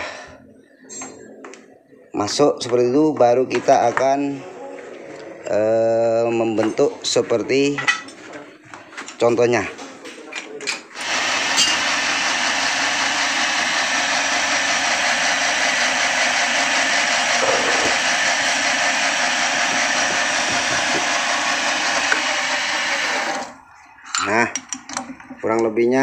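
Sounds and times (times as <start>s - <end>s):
power tool running: 11.0s - 23.6s.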